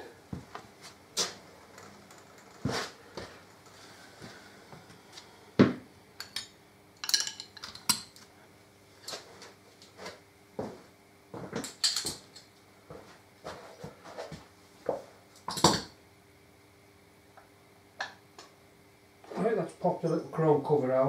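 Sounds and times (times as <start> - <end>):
metal tools clinking on metal: 6.2 - 8.0.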